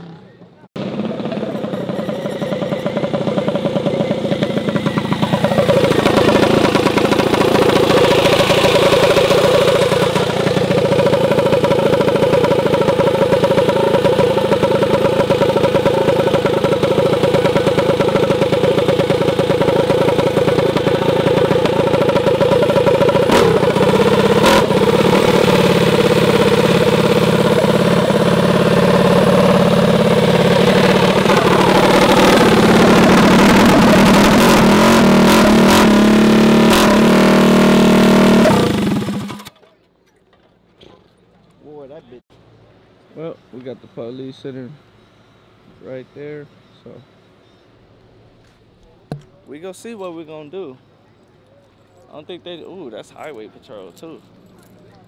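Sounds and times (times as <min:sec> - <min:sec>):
mini bike engine running: 0:00.0 - 0:39.7.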